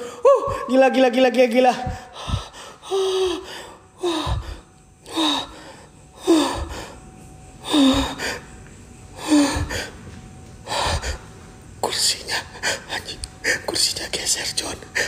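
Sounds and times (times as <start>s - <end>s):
man gasping breaths: 1.9s - 7.0s.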